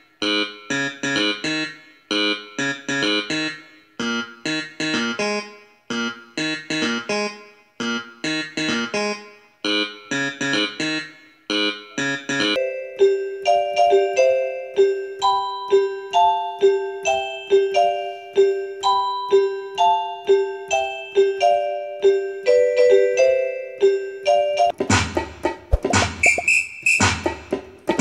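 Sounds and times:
choppy plucked notes: 0:24.8 - 0:28.0.

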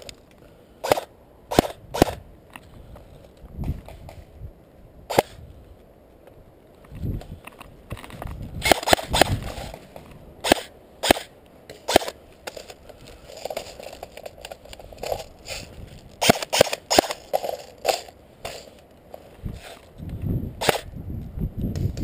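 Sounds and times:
airsoft gun shots: 0:00.8 - 0:02.2, 0:05.1 - 0:05.4, 0:08.6 - 0:09.5, 0:10.4 - 0:12.2, 0:16.2 - 0:17.2, 0:20.6 - 0:20.9
rustling through undergrowth: 0:05.4 - 0:20.2.

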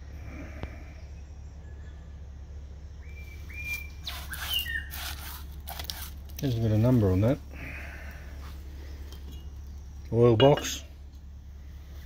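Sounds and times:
bird calling: 0:02.9 - 0:05.6.

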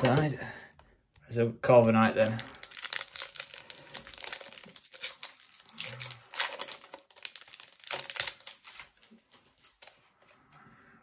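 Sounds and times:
foil wrapper crinkling: 0:02.0 - 0:10.4.

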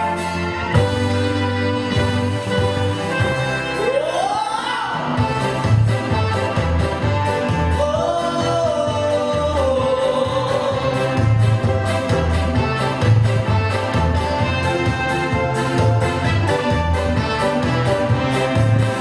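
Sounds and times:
pop backing track with beat: 0:00.0 - 0:19.0
man singing into a microphone: 0:07.7 - 0:11.5.

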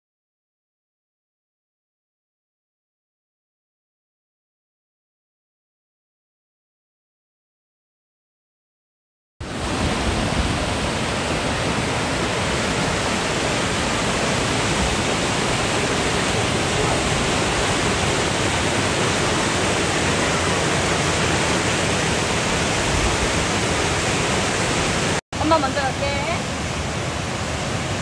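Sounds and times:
loud steady rushing noise: 0:09.4 - 0:28.0.

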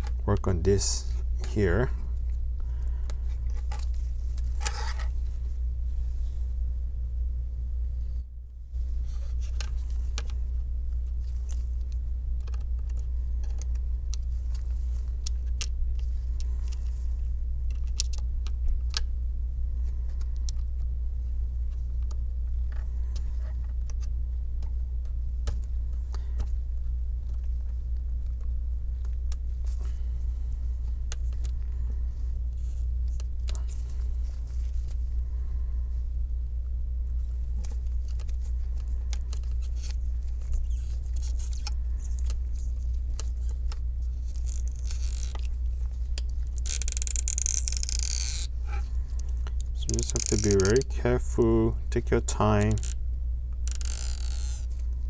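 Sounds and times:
low hum: 0:00.0 - 0:55.0
metal tweezers clicking and scratching: 0:49.6 - 0:50.9.

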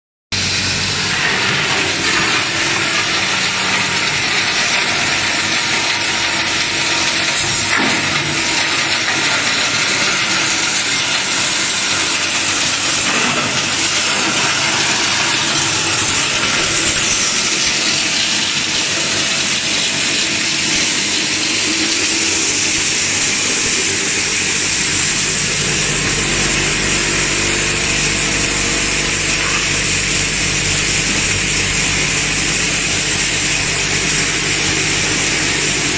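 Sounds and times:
plastic crusher grinding: 0:00.3 - 0:35.9
deep low hum: 0:24.5 - 0:35.9.

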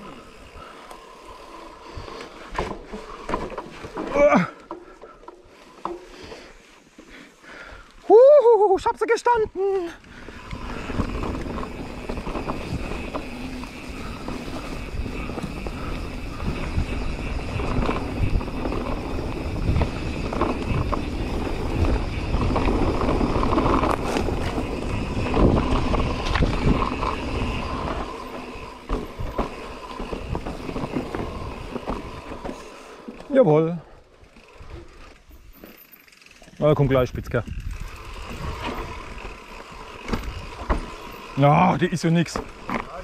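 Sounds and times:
bike knocking and rattling: 0:00.0 - 0:07.7, 0:08.9 - 0:43.0
bike tyres rolling over leaves and dirt: 0:00.0 - 0:43.0
wind on microphone: 0:10.4 - 0:28.2.

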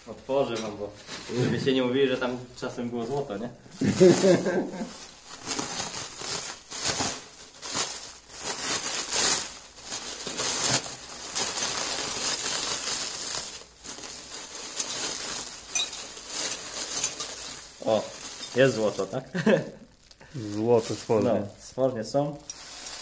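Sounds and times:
plastic bag crinkling: 0:03.1 - 0:23.0
metal pins clinking: 0:15.7 - 0:17.5.

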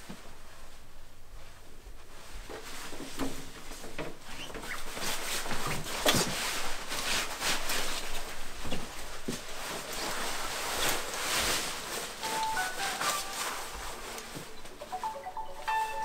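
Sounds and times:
heavy coat rustling and swishing: 0:04.8 - 0:14.6.

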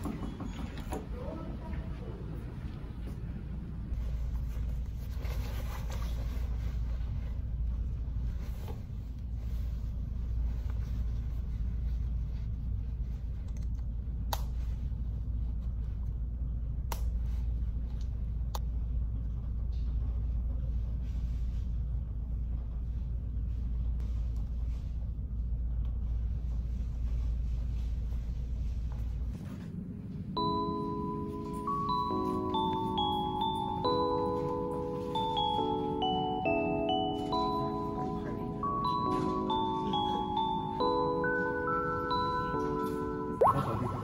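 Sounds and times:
low room rumble: 0:00.0 - 0:44.0
cloth rustling: 0:04.0 - 0:13.3.

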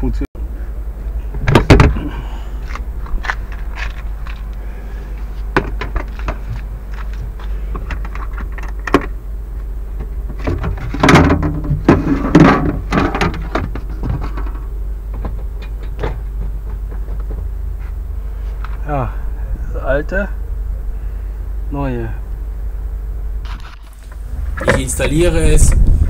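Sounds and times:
steady low hum: 0:00.0 - 0:26.0
rattling and scraping: 0:01.3 - 0:18.9, 0:23.4 - 0:26.0.

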